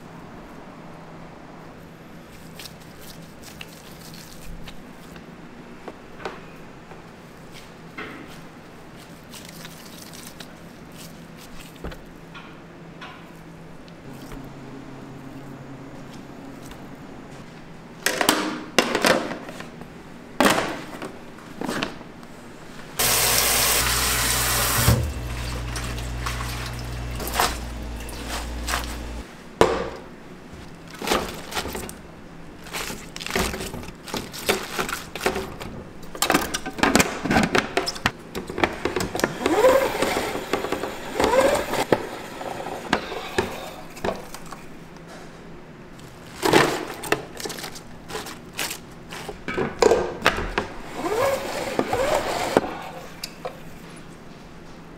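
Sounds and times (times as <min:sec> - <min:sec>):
lettuce rustling and crinkling: 0:02.3 - 0:05.3, 0:07.5 - 0:12.2, 0:23.8 - 0:29.2, 0:30.6 - 0:36.7, 0:45.9 - 0:49.5
loud steady rush with low hum: 0:14.0 - 0:18.1.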